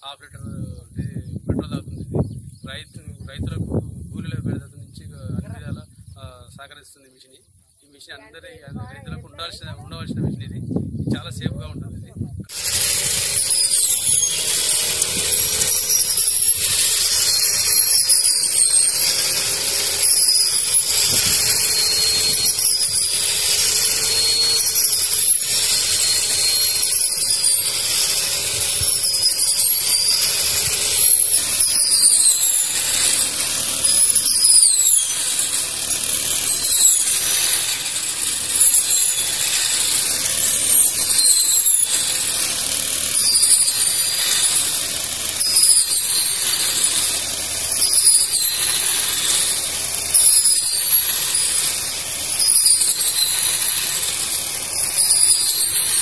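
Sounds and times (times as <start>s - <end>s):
brush cutter engine whining: 0.0s - 6.8s, 8.0s - 56.0s.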